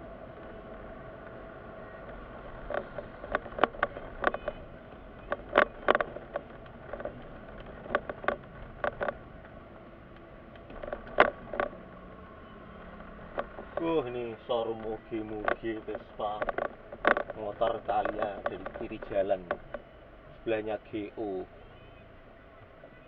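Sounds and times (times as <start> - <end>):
car cabin hum: 0.0 - 23.0
sharp clicks and knocks: 1.2 - 12.0, 12.8 - 21.0.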